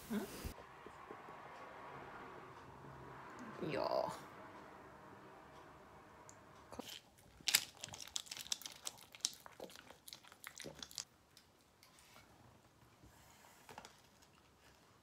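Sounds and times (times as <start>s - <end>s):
foil lid crinkling: 6.8s - 9.5s.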